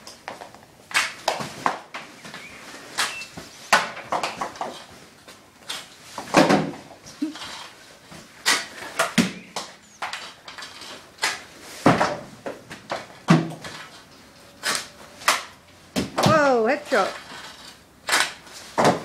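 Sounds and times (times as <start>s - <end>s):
hockey sticks and pucks clacking: 7.4s - 19.0s.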